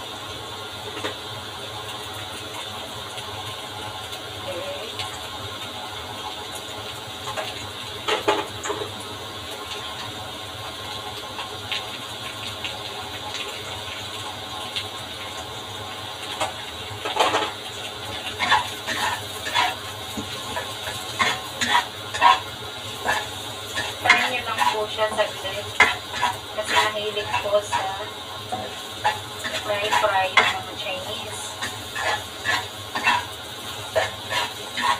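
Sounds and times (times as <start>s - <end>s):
spatula scraping and knocking wok: 16.4s - 34.9s.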